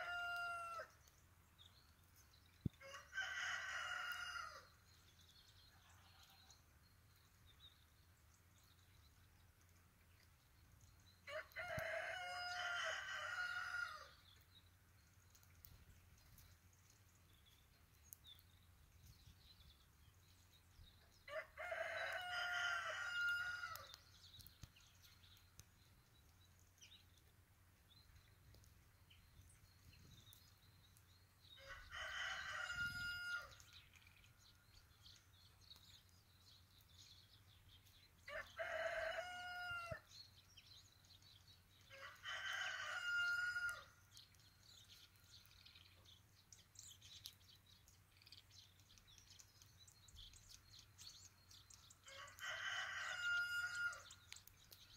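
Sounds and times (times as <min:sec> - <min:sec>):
rooster crowing: 0:00.0 - 0:00.9, 0:11.3 - 0:14.1, 0:21.3 - 0:23.9, 0:31.6 - 0:33.5, 0:38.3 - 0:40.0, 0:41.9 - 0:43.9, 0:52.1 - 0:54.0
faint small birds chirping: 0:00.0 - 0:54.9.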